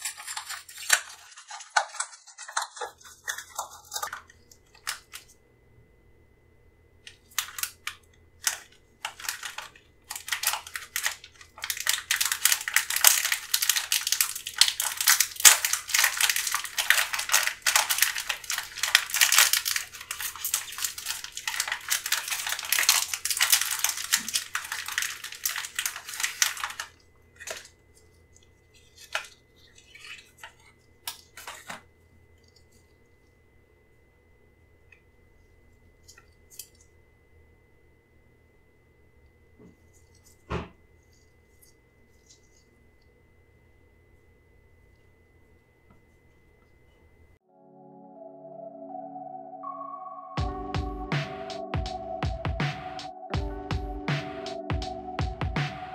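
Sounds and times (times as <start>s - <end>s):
plastic pouch tearing and crinkling: 0.0s - 5.3s, 7.1s - 27.7s, 28.7s - 31.8s.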